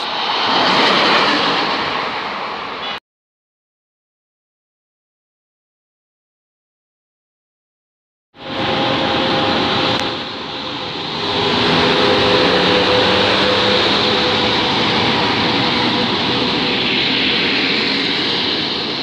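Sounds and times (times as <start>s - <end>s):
electric locomotive passing: 0.0s - 3.0s, 8.4s - 19.0s
passenger coaches rolling by: 0.0s - 3.0s, 8.4s - 19.0s.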